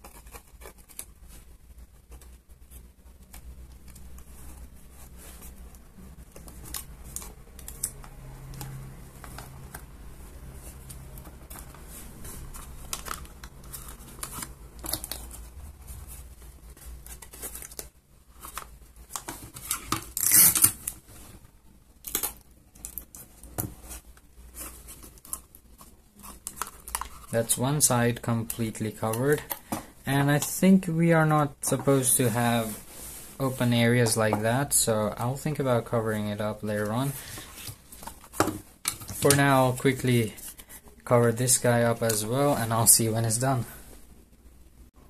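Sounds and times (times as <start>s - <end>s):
paper crinkling and rustling: 0.0s - 30.4s, 31.9s - 43.6s
paper ripping: 16.8s - 21.0s.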